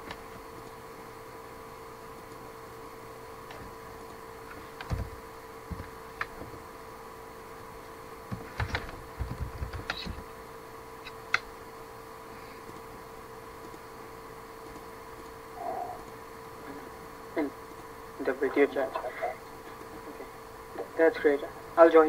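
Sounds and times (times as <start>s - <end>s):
faint electrical hum: 0.0s - 22.0s
keyboard keystrokes: 8.3s - 10.2s
mouse clicks: 9.8s - 10.2s, 11.0s - 11.5s.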